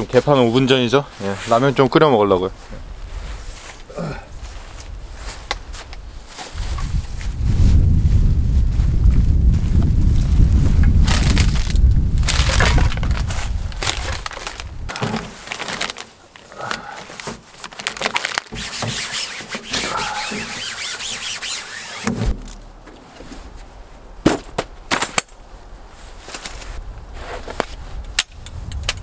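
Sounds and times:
wind on microphone: 2.6s - 15.0s, 26.6s - 29.0s
plastic bag crackling and rustling: 4.4s - 23.5s.

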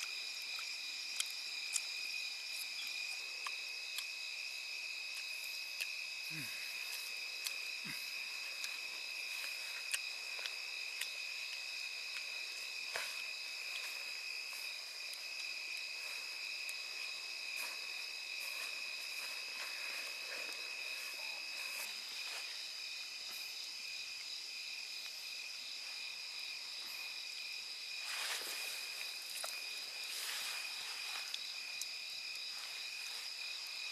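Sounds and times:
night insects trilling: 0.0s - 33.9s.

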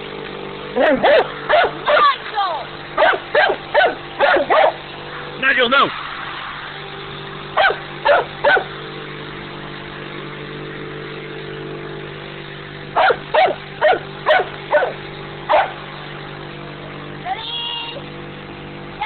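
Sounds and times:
steady low hum: 0.0s - 19.0s
dog barking: 0.8s - 2.0s, 3.0s - 4.8s, 7.6s - 8.7s, 13.0s - 15.8s.

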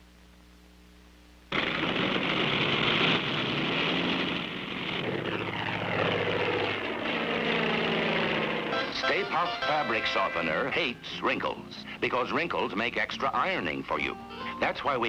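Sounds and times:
propeller engine running: 1.5s - 12.1s.

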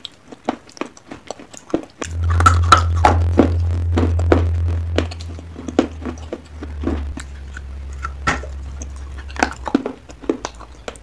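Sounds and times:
wet clay biting and chewing: 0.0s - 2.1s.

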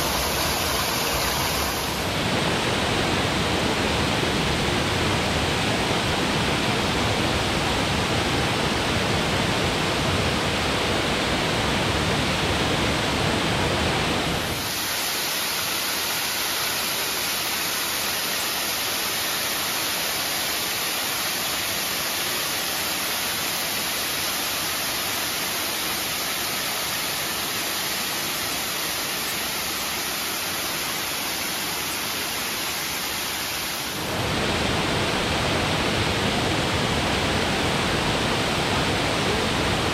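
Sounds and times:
waterfall rushing: 0.0s - 3.4s, 13.9s - 39.9s.

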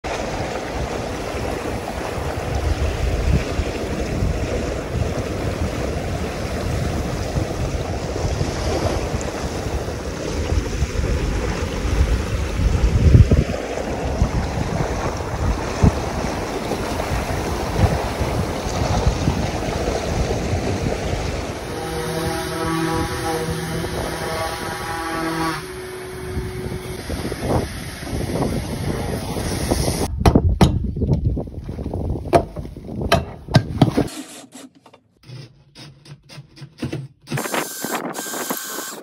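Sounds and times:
water rushing past hull: 0.0s - 30.1s
wind buffeting microphone: 0.1s - 34.0s.

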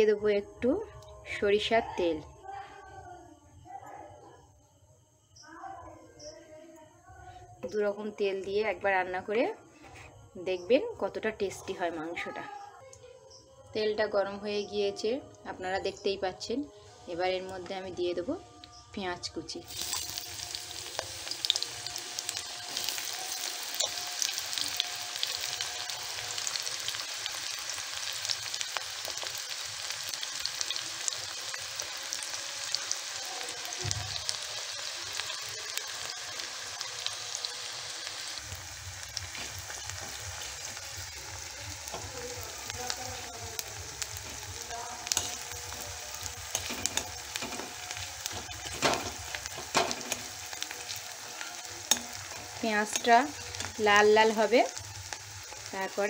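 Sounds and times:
onion sizzling in oil: 13.8s - 56.0s.

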